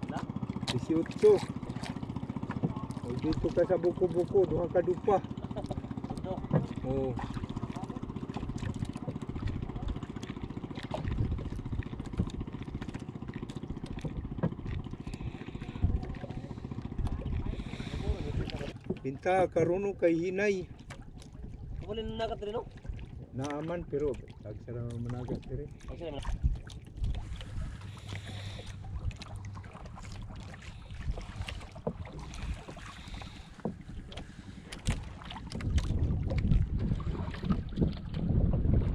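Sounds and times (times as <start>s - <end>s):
small boat engine running: 0.0s - 38.9s
water lapping against hull: 0.0s - 38.9s
wind buffeting microphone: 10.9s - 12.4s, 14.0s - 18.8s, 30.9s - 38.9s.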